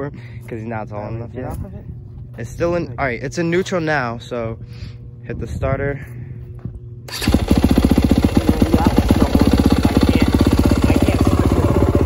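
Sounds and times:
motorcycle engine idling: 0:07.1 - 0:12.0.

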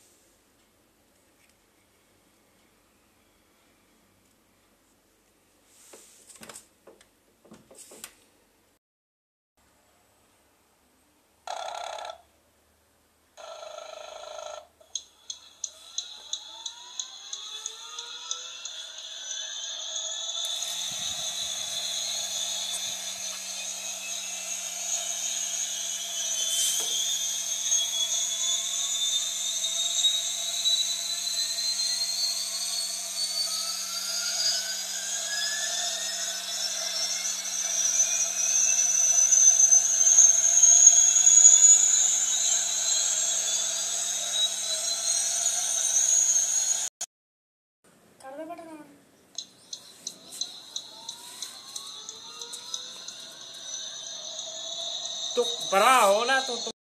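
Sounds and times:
small motor whine rising in pitch: 0:13.4 - 0:47.0, 0:49.7 - 0:56.8.

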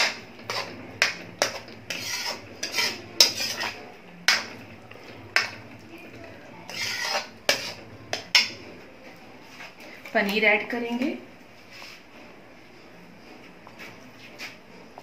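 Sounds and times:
ladle scraping metal pan: 0:00.0 - 0:08.7.

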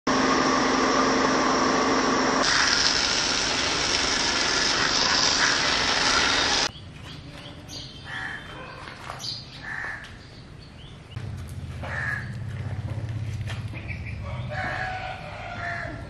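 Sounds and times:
washer motor humming: 0:00.1 - 0:06.7
pressure washer spraying water: 0:00.4 - 0:06.7
birds calling: 0:05.3 - 0:11.2, 0:11.8 - 0:12.8, 0:13.6 - 0:16.0.

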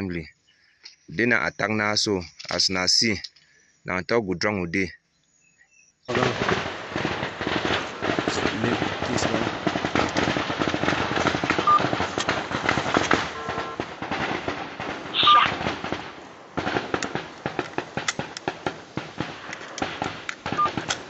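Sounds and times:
gunshots cracking: 0:06.1 - 0:21.0.

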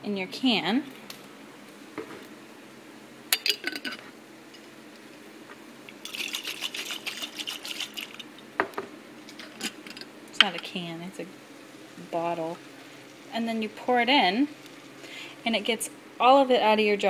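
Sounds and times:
water sloshing in glass jar: 0:06.0 - 0:08.2.

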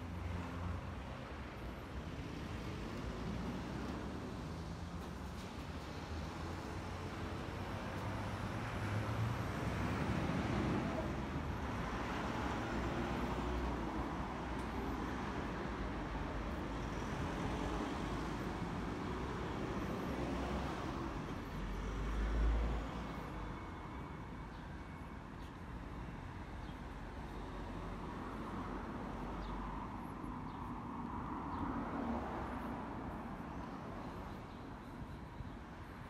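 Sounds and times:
vehicles driving past: 0:00.0 - 0:36.0.

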